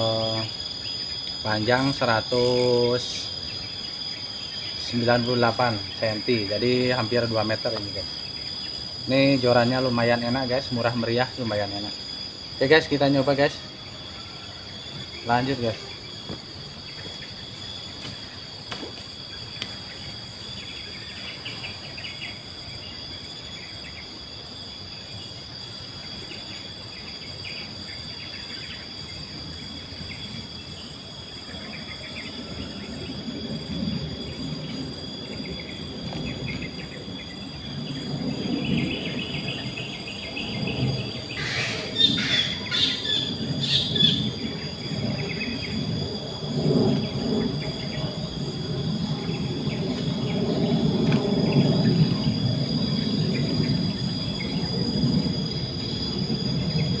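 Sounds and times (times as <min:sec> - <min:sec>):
birds chirping: 0:00.0 - 0:24.1, 0:26.0 - 0:57.0
insects shrilling: 0:00.0 - 0:57.0
low rumbling noise: 0:32.0 - 0:57.0.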